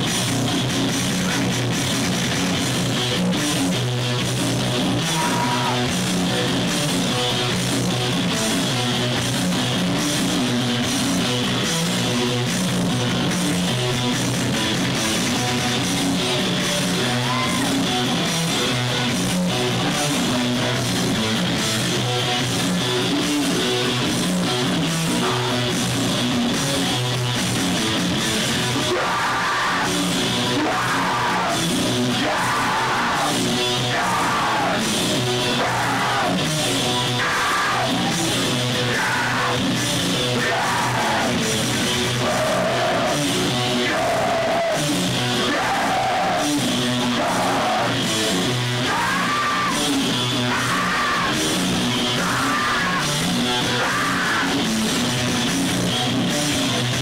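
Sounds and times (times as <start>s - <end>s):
drum kit: 0.0s - 57.0s
electric guitars: 0.0s - 57.0s
person yelling vocals: 5.0s - 5.9s, 17.0s - 17.8s, 28.8s - 34.9s, 37.1s - 39.6s, 48.8s - 51.5s, 52.1s - 54.6s.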